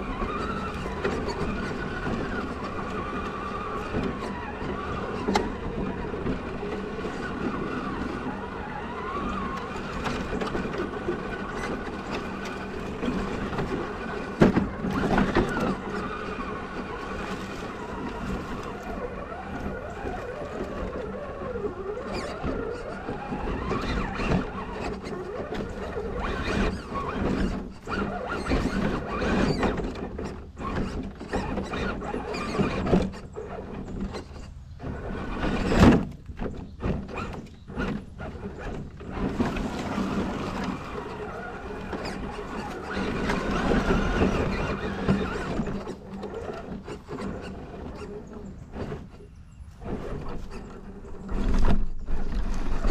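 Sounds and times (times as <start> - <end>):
electric motor and gears whining: 0.0 - 52.9
knocks and clicks of toy truck: 9.2 - 16.1.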